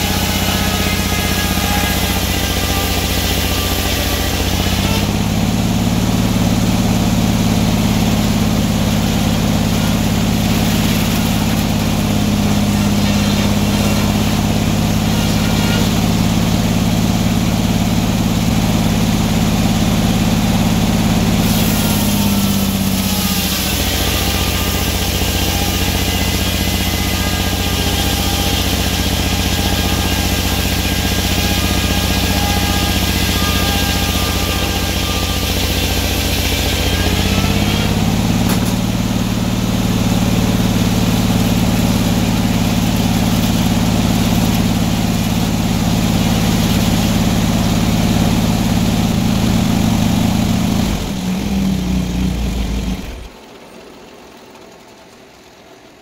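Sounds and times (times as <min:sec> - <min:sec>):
circular saw blade sawing log: 0:00.0 - 0:53.4
steady drone of mill drive: 0:38.4 - 0:56.0.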